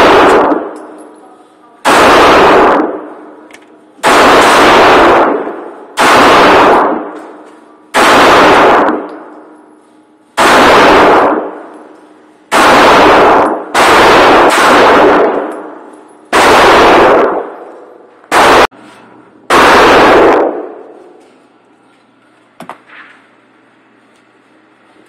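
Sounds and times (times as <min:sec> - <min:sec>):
pistol shots echoing indoors: 0:00.0 - 0:01.0, 0:01.8 - 0:09.6, 0:10.4 - 0:18.7, 0:19.5 - 0:21.2.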